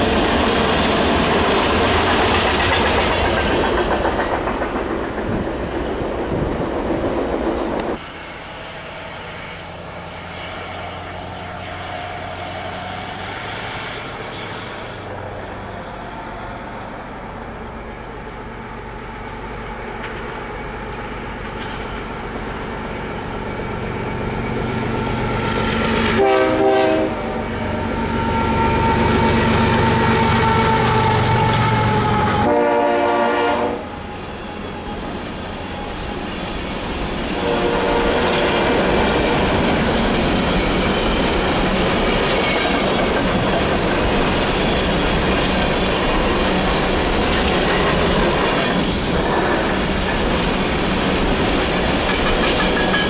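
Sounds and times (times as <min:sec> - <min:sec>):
freight train rumbling past: 0:00.0 - 0:53.0
train horn blasts: 0:26.1 - 0:34.0, 0:37.4 - 0:38.9.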